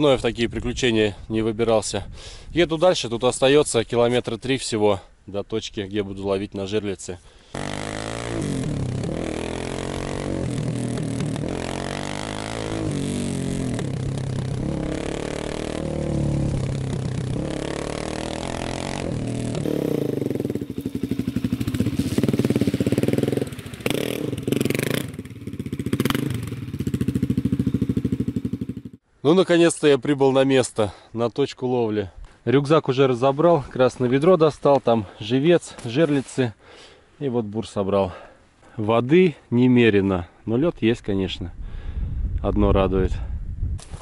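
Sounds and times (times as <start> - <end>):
dirt bike engine revving: 7.5 - 29.0
low pulsing engine: 7.6 - 25.8.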